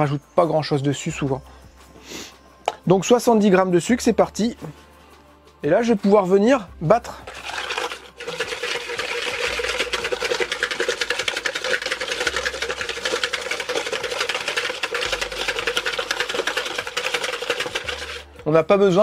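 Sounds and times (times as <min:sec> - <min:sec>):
whisk beating in a bowl: 0:07.2 - 0:18.3.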